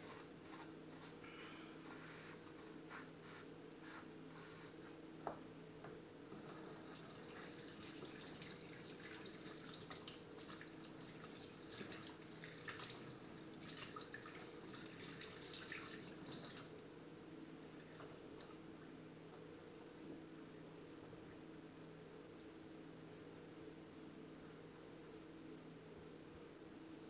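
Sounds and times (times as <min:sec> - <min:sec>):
water drips and splashes: 0:06.9 - 0:16.7.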